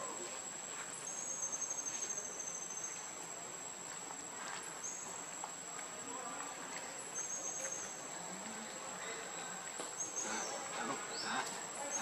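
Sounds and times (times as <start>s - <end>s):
insects high-pitched whine: 0.0s - 3.8s.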